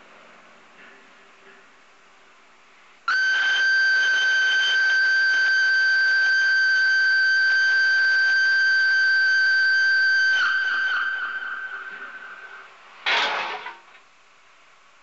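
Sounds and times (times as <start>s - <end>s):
steam locomotive whistle: 3.1s - 12.8s.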